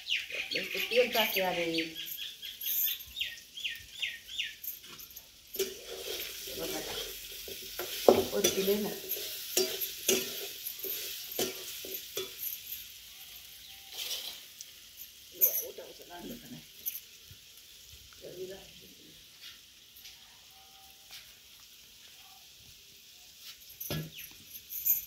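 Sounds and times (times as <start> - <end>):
bird chirping: 0.0 - 4.8, 23.9 - 24.6
potatoes sizzling: 0.0 - 24.9
spatula scraping steel pan: 5.6 - 12.4, 13.8 - 14.5
spatula clinking against pan: 5.6 - 13.0.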